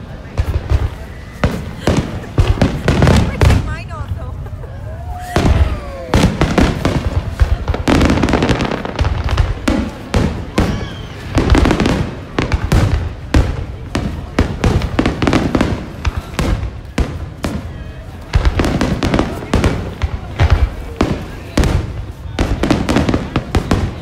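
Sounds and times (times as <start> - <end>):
fireworks bangs and crackling bursts: 0.0 - 24.0.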